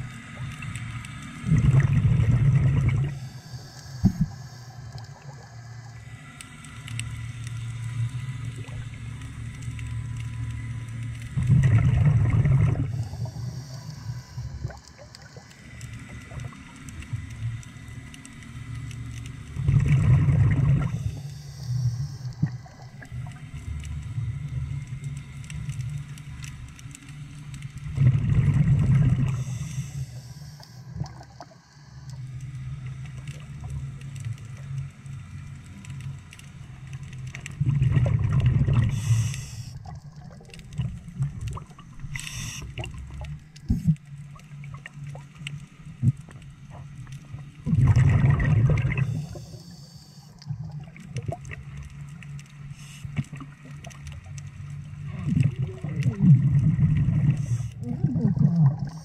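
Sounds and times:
exhaled bubbles bursting: 0:01.5 - 0:03.2, 0:11.4 - 0:13.3, 0:19.6 - 0:21.0, 0:27.9 - 0:29.4, 0:37.6 - 0:39.0, 0:47.6 - 0:49.4, 0:55.1 - 0:59.0.

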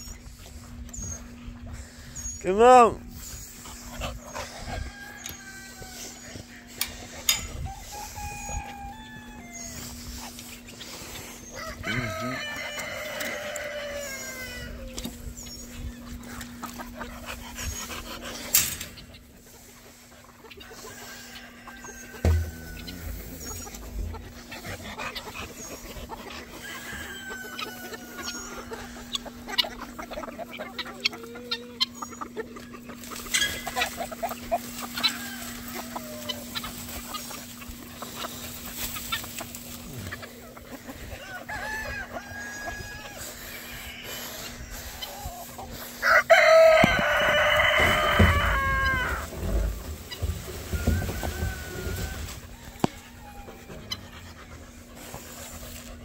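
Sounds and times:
chickens clucking: 0:00.0 - 0:56.0
rooster crowing: 0:04.6 - 0:06.5, 0:07.3 - 0:09.9, 0:11.5 - 0:15.2, 0:20.6 - 0:25.0, 0:26.5 - 0:29.4, 0:34.9 - 0:36.5, 0:41.1 - 0:45.4, 0:46.0 - 0:54.4
dog panting: 0:16.3 - 0:18.7, 0:22.9 - 0:26.7, 0:53.4 - 0:56.0
rattles against wire kennel panels: 0:18.0 - 0:19.1, 0:21.8 - 0:25.4, 0:46.7 - 0:52.8
heavy thump: 0:22.2 - 0:24.2.

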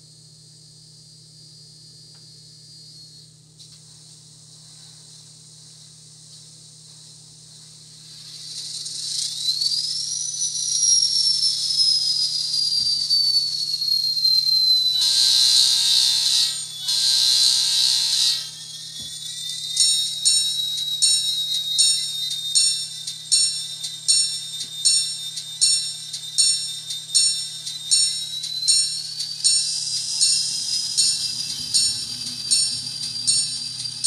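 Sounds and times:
locomotive engine whine: 0:08.5 - 0:34.0
locomotive horn blasts: 0:15.0 - 0:18.3.

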